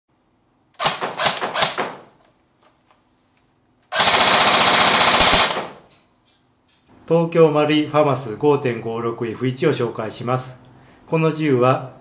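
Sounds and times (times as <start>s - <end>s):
airsoft gun firing: 0.8s - 2.1s, 3.9s - 5.9s.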